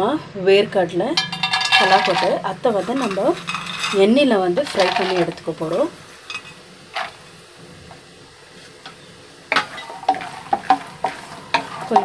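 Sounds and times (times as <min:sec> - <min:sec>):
peanuts sizzling in oil: 0:01.1 - 0:12.0
spatula scraping nuts in pan: 0:01.2 - 0:07.4, 0:09.5 - 0:12.0.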